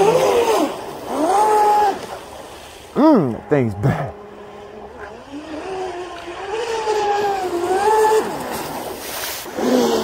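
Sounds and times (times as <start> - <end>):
model boat motor whining: 0.0 - 10.0
water hiss: 8.0 - 10.0.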